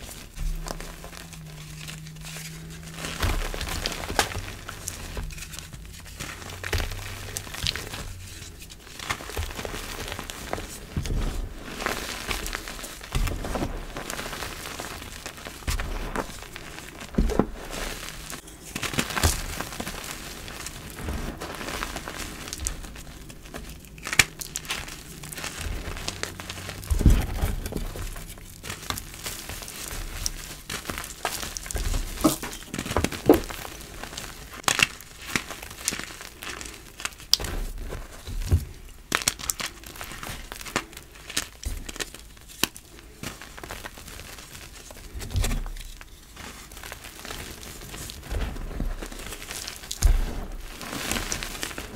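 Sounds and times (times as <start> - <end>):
chalk crunching and crackling: 0.0 - 51.9
heavy thuds: 24.4 - 33.8.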